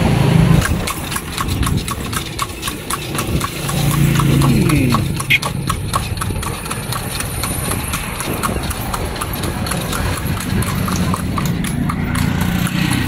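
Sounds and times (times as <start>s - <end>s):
horse hooves clip-clopping on asphalt: 0.0s - 13.0s
motor vehicle engine hum: 0.0s - 13.0s.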